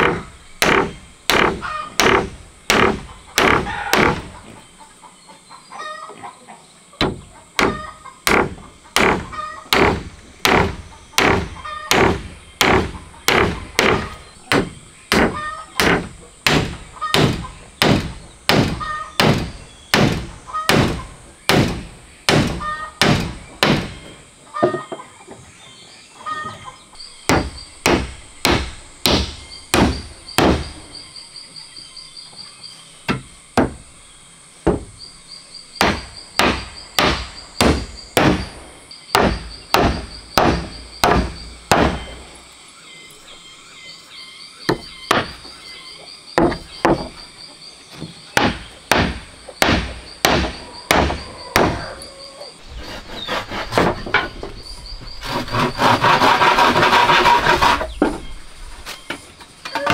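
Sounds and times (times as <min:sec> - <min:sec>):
hammer driving nails into wood: 0:07.0 - 0:23.9.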